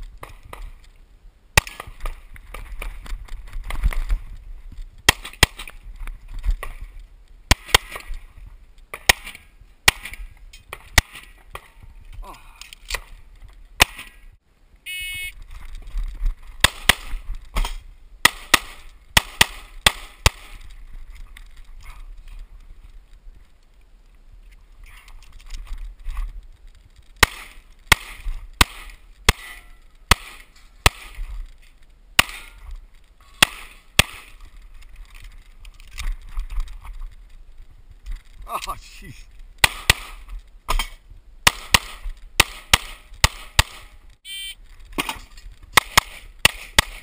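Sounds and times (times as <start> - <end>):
short electronic beep: 14.9 - 15.4, 44.2 - 44.6
pistol shots: 39.6 - 43.9, 45.8 - 47.0.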